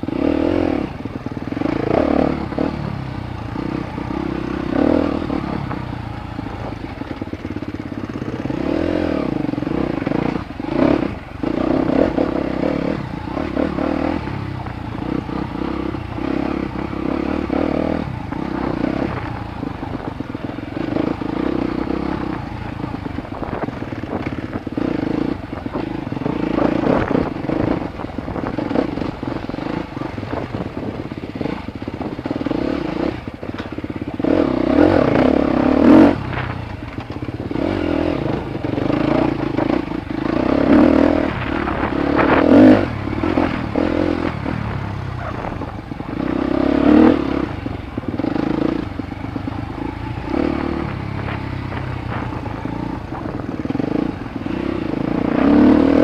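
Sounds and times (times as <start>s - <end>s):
dirt bike engine revving: 0.0s - 56.0s
bike knocks and rattles: 41.1s - 55.0s.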